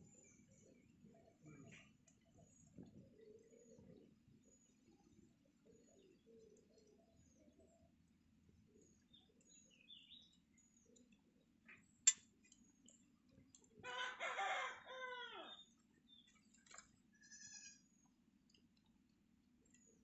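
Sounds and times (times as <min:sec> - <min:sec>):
faint bird chirps: 0:00.0 - 0:13.6
rooster crowing: 0:13.8 - 0:15.6.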